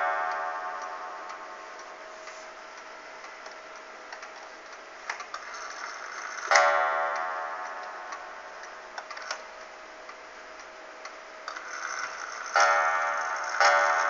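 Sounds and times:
wall clock striking: 0.0 - 3.8, 5.5 - 10.1, 11.6 - 14.0
clock ticking faintly: 0.0 - 14.0.

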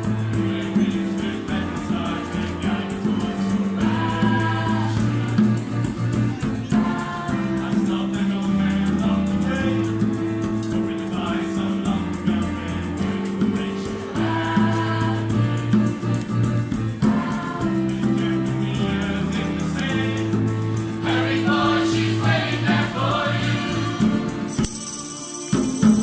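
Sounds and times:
choir singing chords: 0.0 - 6.0, 6.7 - 10.2, 10.9 - 16.0, 17.0 - 26.0
tambourine beat: 0.0 - 26.0.

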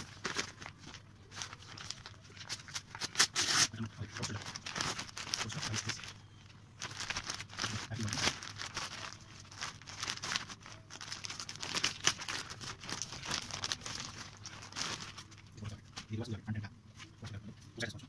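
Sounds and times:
paper bag crinkling: 0.0 - 6.2, 6.8 - 16.1
plastic wrapping rustling: 0.0 - 16.2
paper tearing: 2.4 - 5.8.

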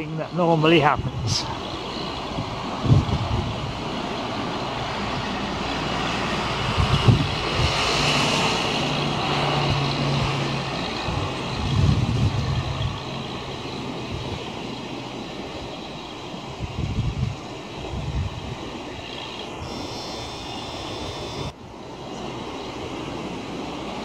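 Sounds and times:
engine droning: 0.0 - 24.0
wind on microphone: 0.7 - 24.0.

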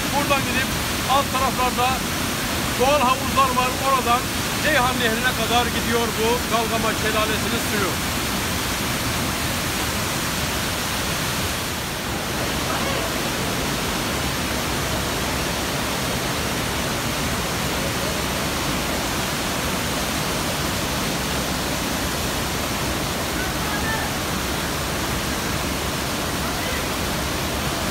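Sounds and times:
waterfall rushing: 0.0 - 27.9.

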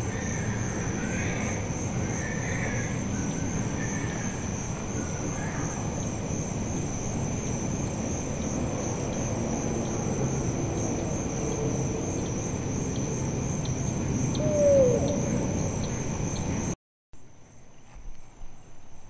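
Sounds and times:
crickets trilling: 0.0 - 16.8.

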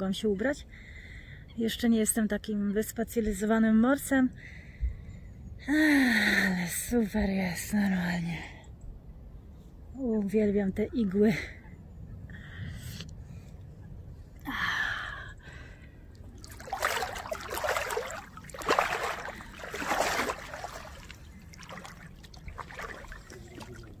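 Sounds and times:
water sloshing and splashing: 16.1 - 24.0.

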